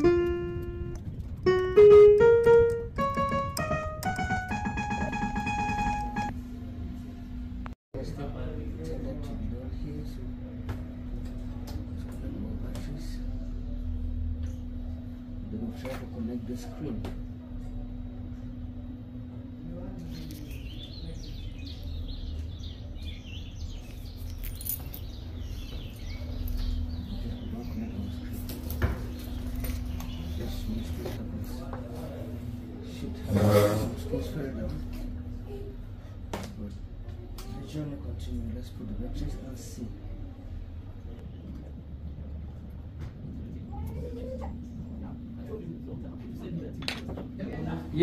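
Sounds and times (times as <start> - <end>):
background music melody: 0.0 - 6.4
low steady rumble: 0.0 - 37.3, 38.0 - 48.0
small birds chirping: 20.0 - 31.2.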